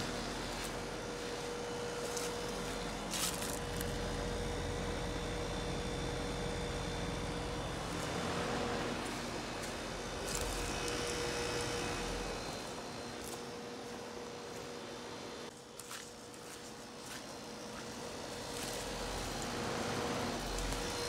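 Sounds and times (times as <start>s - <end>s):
compressor hum: 0.0s - 21.0s
fan rushing: 0.0s - 21.0s.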